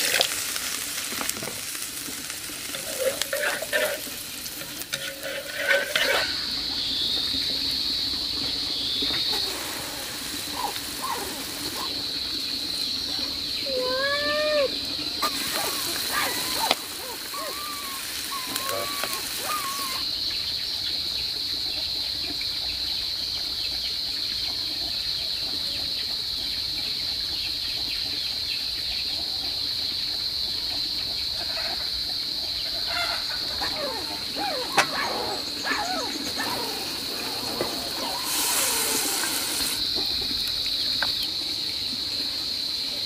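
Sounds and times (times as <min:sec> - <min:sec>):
birds calling: 0:02.4 - 0:20.0, 0:32.6 - 0:41.4
high-pitched insect drone: 0:02.6 - 0:20.4, 0:31.6 - 0:43.0.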